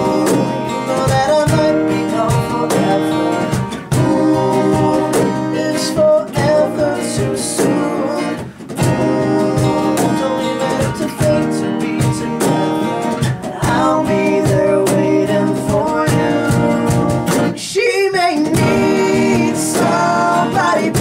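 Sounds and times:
man singing: 0:00.0 - 0:21.0
strummed acoustic guitar: 0:00.0 - 0:21.0.

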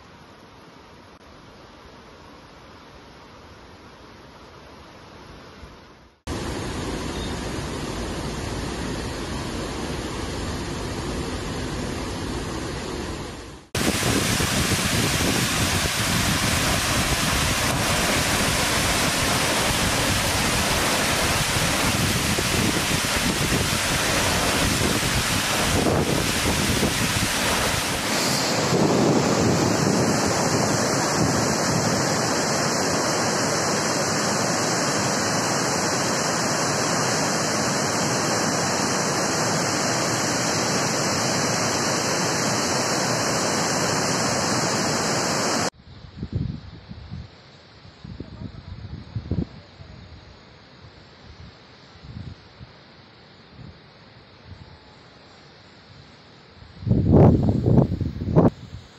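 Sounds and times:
water pouring over dam spillway: 0:13.8 - 0:45.7
waterfall pouring over rocks: 0:13.8 - 0:45.7.

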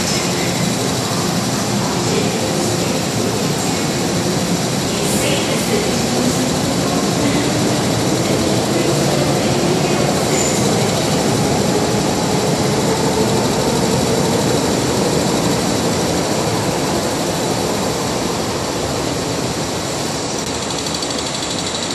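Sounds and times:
train wheels rumbling: 0:00.0 - 0:21.9.

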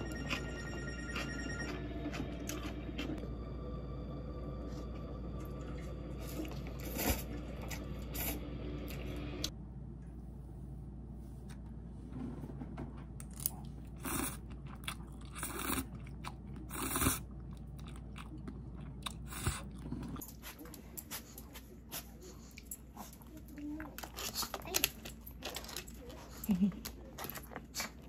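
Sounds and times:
noodles slurped and chewed: 0:04.8 - 0:09.5, 0:13.6 - 0:28.0.

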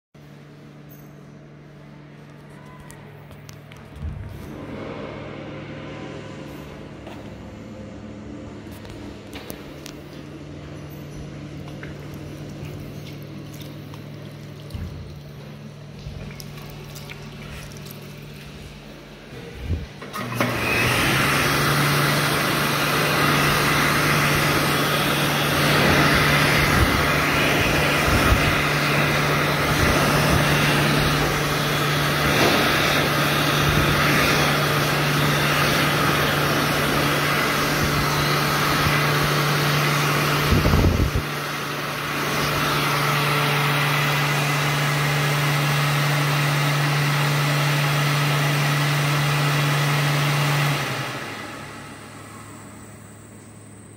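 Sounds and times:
hand dryer blowing: 0:11.7 - 0:53.1.

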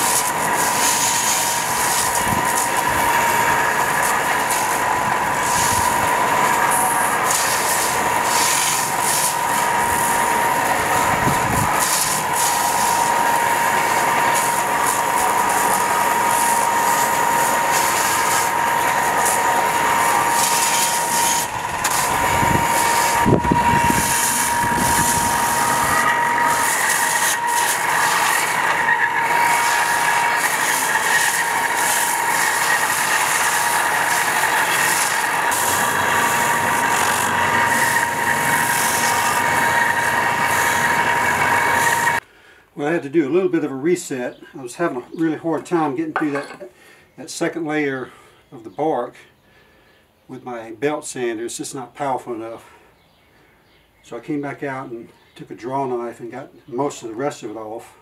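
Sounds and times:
belt grinding bark off stick: 0:00.0 - 0:42.2
belt sander whining: 0:00.0 - 0:42.3.

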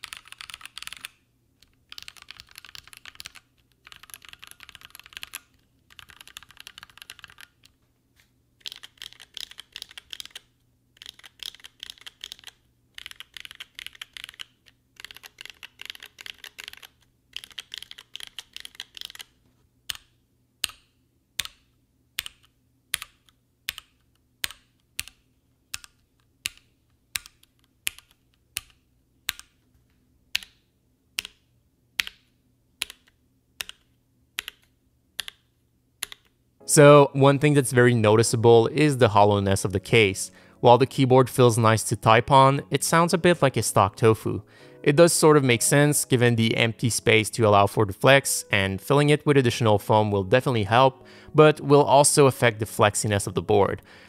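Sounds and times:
mechanical keyboard typing: 0:00.0 - 0:01.2, 0:01.9 - 0:07.7, 0:08.6 - 0:19.3, 0:22.2 - 0:29.5, 0:32.8 - 0:35.4.

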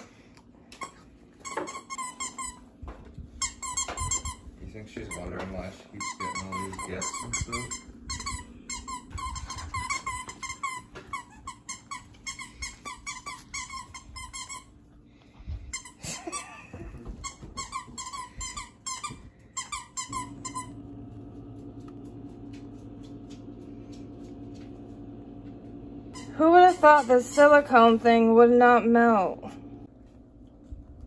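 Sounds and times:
squeaky toy squeaking: 0:01.4 - 0:02.6, 0:06.0 - 0:14.7
steady low hum: 0:02.4 - 0:31.0.

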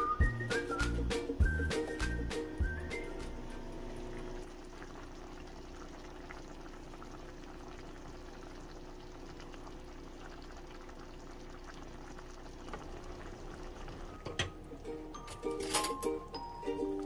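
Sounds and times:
sauce bubbling in a pan: 0:04.1 - 0:15.2.

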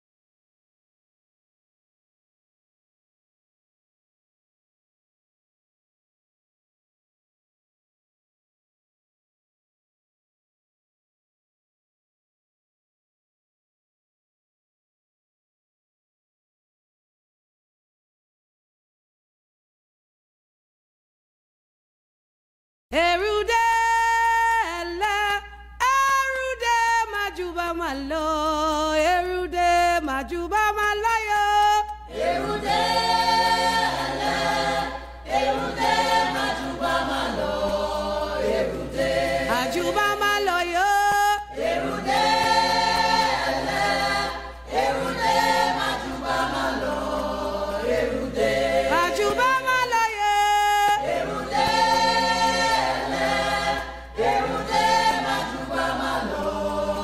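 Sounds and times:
choir singing in harmony: 0:32.0 - 0:57.0.

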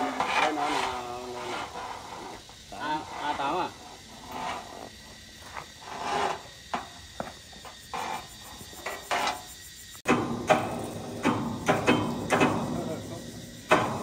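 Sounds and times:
hand tool scraping wood: 0:00.0 - 0:09.5
sharp knocks: 0:10.0 - 0:13.0, 0:13.6 - 0:14.0.

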